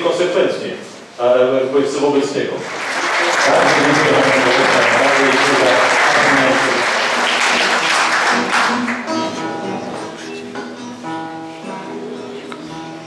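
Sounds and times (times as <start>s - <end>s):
audience applauding: 2.6s - 9.6s
classical guitar playing: 7.4s - 13.0s.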